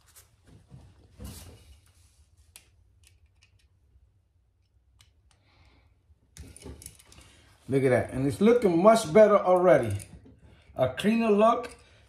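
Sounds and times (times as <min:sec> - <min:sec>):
wire handling rustle: 0:06.3 - 0:07.7.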